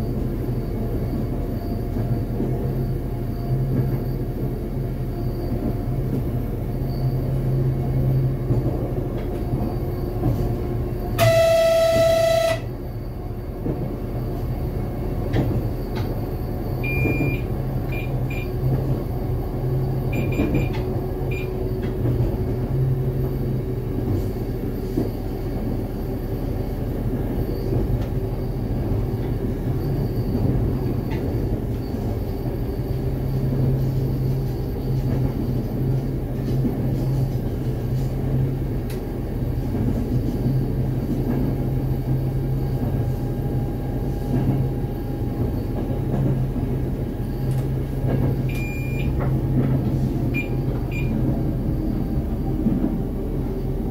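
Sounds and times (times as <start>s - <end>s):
diesel train engine drone: 0.0s - 53.9s
rail noise: 0.0s - 53.9s
train horn blast: 11.2s - 12.8s.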